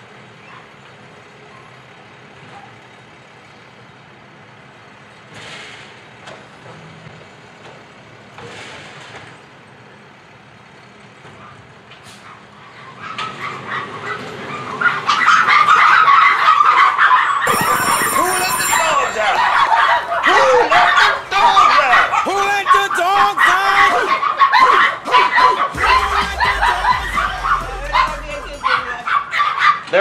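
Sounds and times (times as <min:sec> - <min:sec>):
dogs barking: 0:12.2 - 0:30.0
garbage truck engine: 0:17.4 - 0:24.2.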